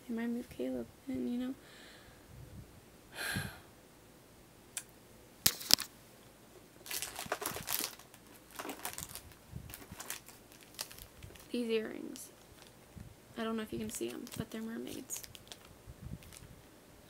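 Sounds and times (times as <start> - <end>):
breathy exhale: 1.6 - 2.3, 3.1 - 3.7
plastic bag crinkling: 6.8 - 12.9, 13.6 - 16.5.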